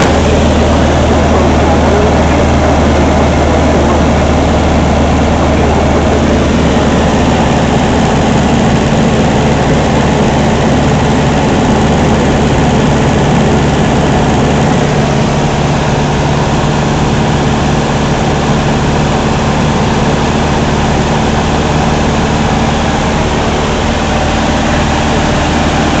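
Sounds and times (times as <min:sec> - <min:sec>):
rush of airflow: 0:00.0 - 0:18.1
aircraft engine droning: 0:00.0 - 0:26.0.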